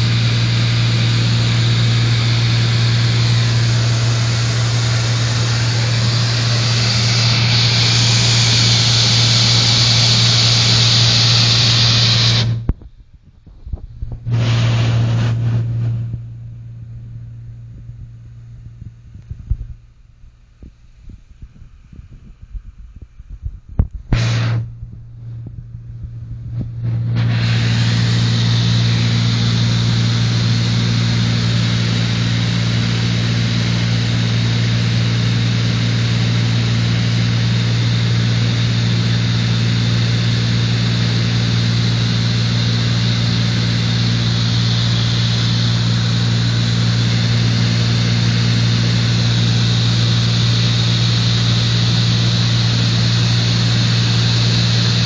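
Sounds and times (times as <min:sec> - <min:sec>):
hiss of rushing air: 0:00.0 - 0:12.6, 0:14.2 - 0:16.1, 0:24.1 - 0:24.7, 0:26.6 - 0:55.0
airliner engine drone: 0:00.0 - 0:12.8, 0:13.4 - 0:55.0.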